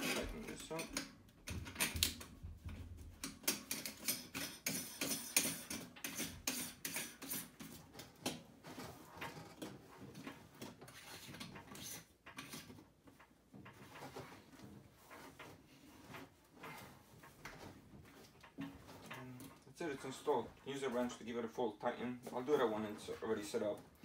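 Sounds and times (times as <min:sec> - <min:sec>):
drain nut clicking and scraping: 0:03.2 - 0:08.4, 0:09.2 - 0:14.0.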